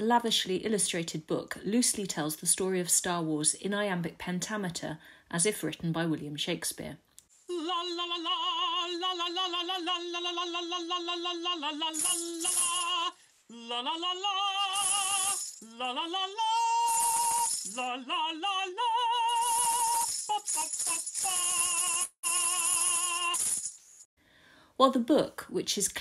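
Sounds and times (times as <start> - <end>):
person singing with vibrato: 7.5 - 23.7.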